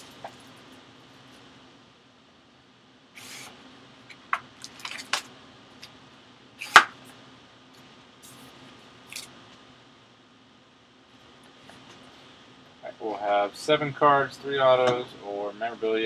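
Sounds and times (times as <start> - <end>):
plastic wrap rustling and crackling: 4.6 - 5.3.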